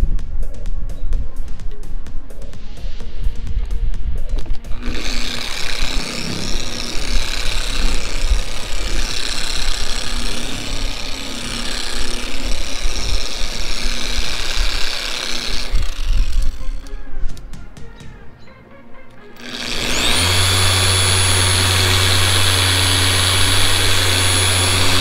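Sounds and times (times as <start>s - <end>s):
polisher motor whir: 4.6s - 17.0s, 19.3s - 25.0s.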